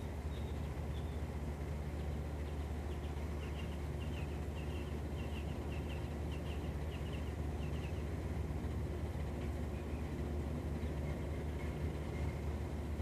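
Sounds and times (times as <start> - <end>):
steady low rumble: 0.0 - 13.0
small bird chirping: 0.3 - 1.3, 2.0 - 8.2.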